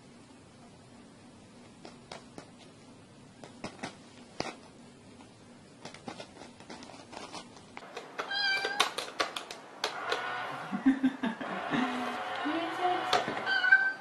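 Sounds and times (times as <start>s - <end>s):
cat paw scraping on mat: 5.8s - 7.7s.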